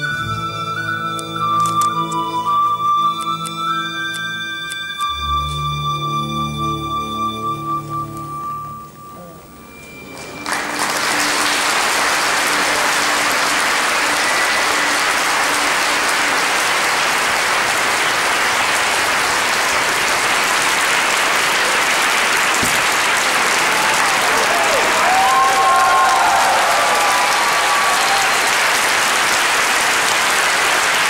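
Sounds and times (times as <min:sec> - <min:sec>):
music: 0:00.0 - 0:18.7
audience applauding: 0:10.0 - 0:31.0.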